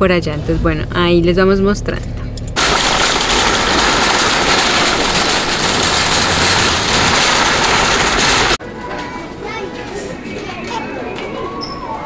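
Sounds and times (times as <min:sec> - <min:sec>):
shopping cart wheels rattling: 0:02.6 - 0:08.6.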